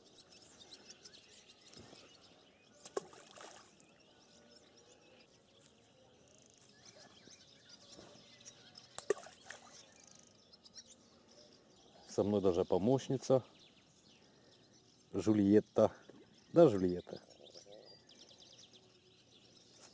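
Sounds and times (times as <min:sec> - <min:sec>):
bait splashing into water: 0:02.9 - 0:03.8.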